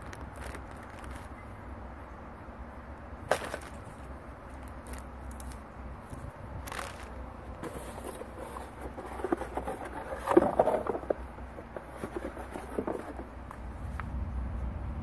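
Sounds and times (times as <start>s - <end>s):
plastic bags and paper rustling: 0.0s - 1.4s, 6.6s - 13.3s
low steady rumble: 0.0s - 15.0s.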